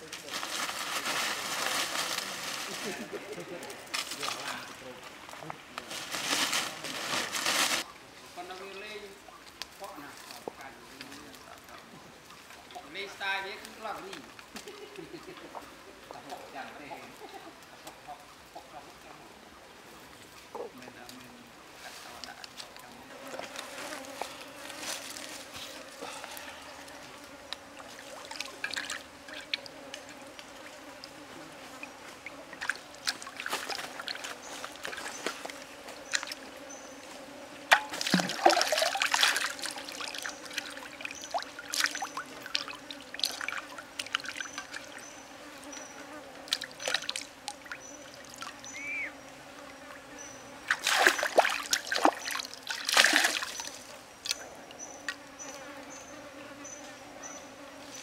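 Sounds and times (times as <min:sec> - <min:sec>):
water splashing in a frying pan: 0:37.7 - 0:44.7, 0:50.7 - 0:53.7.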